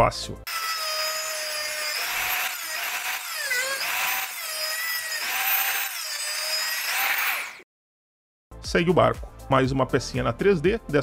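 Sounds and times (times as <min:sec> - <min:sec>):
rotary tool grinding metal: 0:00.5 - 0:07.6.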